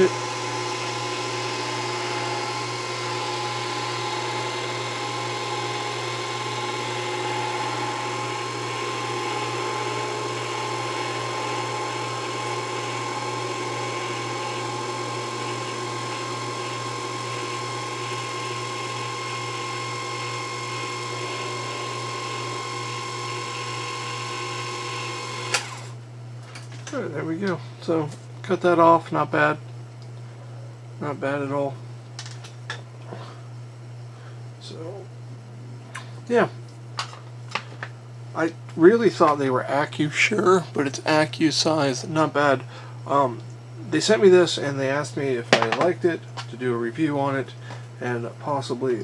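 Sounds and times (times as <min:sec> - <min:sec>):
lathe motor whine and hum: 0:00.0 - 0:26.1.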